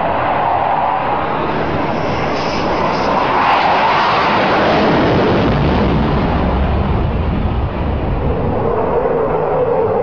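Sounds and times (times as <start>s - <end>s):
jet engine rushing: 0.0s - 10.0s
deep rumble: 5.3s - 10.0s.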